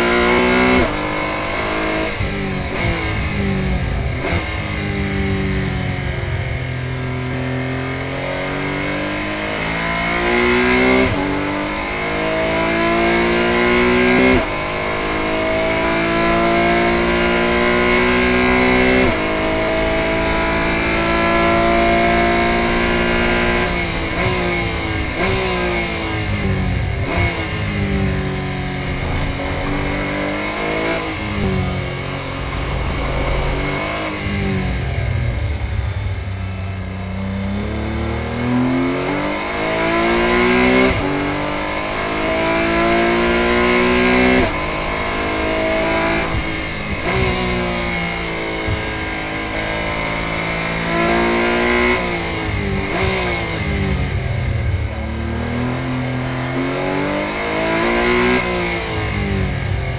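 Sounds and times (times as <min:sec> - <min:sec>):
car engine accelerating: 0:00.0 - 0:59.9.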